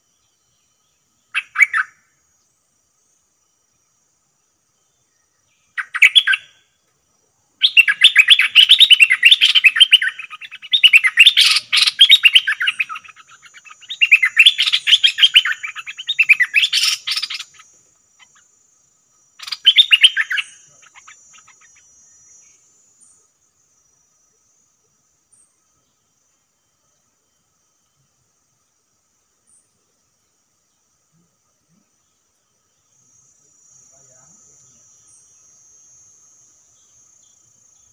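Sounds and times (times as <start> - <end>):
songbird warbling: 1.2 - 2.1, 5.5 - 6.6, 7.6 - 18.6, 19.3 - 23.2.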